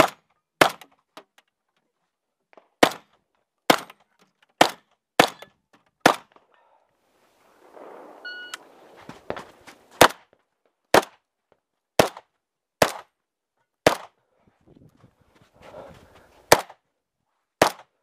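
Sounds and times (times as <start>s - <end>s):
shotgun shots: 7.4s - 10.2s, 17.6s - 17.9s
electronic timer beep: 8.2s - 8.6s.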